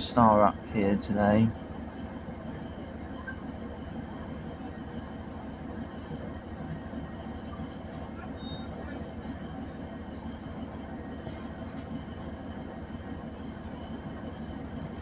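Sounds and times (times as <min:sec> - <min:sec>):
train rumbling along tracks: 0:00.0 - 0:15.0
short high-pitched squeaks: 0:08.4 - 0:09.2, 0:09.9 - 0:10.4.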